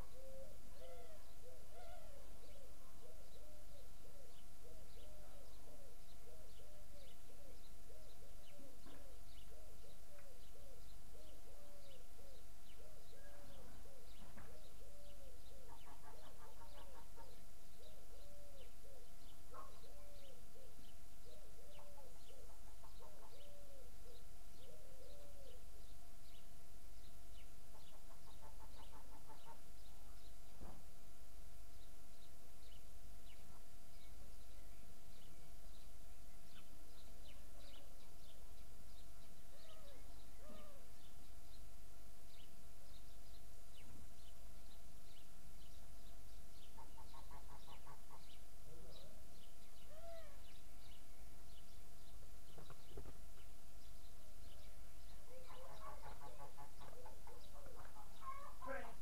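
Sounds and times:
dove cooing: 0.0s - 25.6s, 39.5s - 40.8s
small birds chirping: 0.0s - 59.0s.

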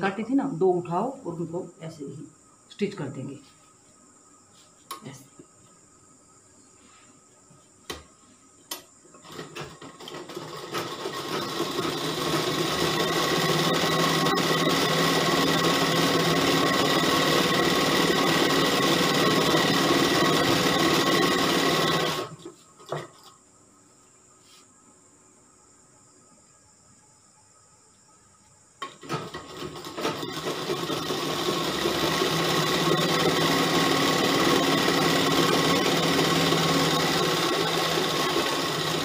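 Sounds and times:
sewing machine stitching: 9.2s - 23.1s, 28.8s - 39.0s.

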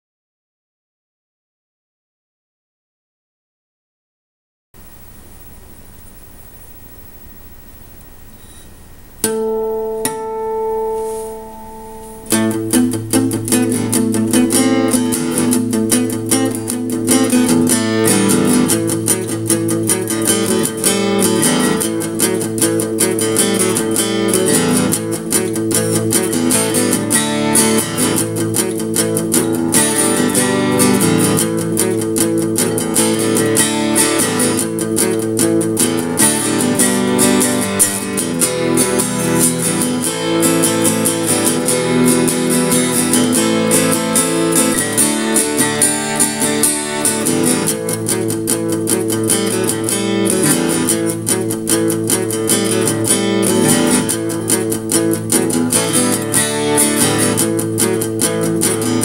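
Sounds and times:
acoustic guitar note ringing: 4.8s - 59.0s
guitar strumming rock chords: 4.8s - 59.0s.

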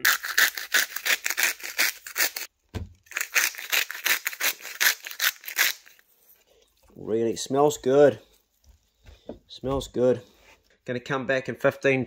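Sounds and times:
scratchy salt grinding: 0.0s - 2.5s.

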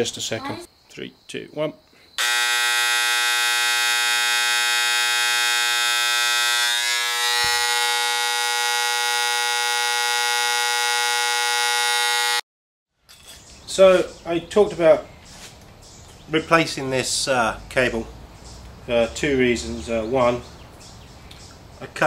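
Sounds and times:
transformer buzzing hum: 2.2s - 12.4s.

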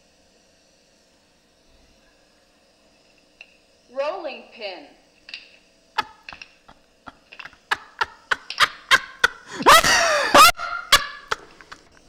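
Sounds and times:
burst of laughter: 7.4s - 11.8s.

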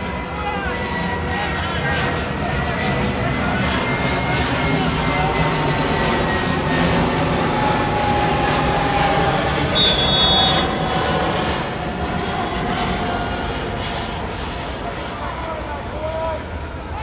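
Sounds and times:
crowd noise: 0.0s - 17.0s
whistle blast: 9.6s - 11.2s.

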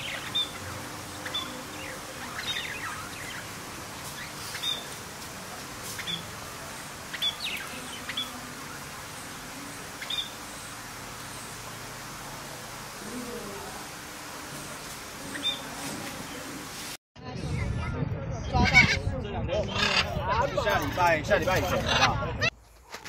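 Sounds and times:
budgerigars chirping: 0.0s - 5.0s, 5.9s - 6.4s, 7.0s - 10.8s, 15.3s - 15.7s
faint steady hiss: 0.0s - 17.0s.

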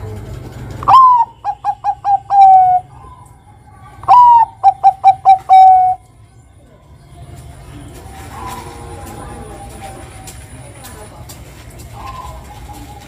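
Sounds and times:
dove cooing: 0.7s - 6.0s, 8.2s - 10.2s, 11.9s - 13.0s.

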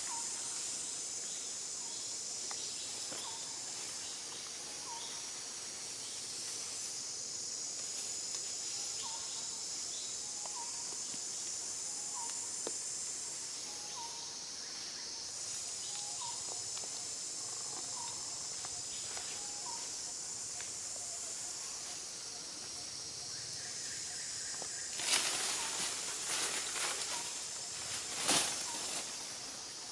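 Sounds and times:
insects buzzing drone: 0.0s - 29.9s.

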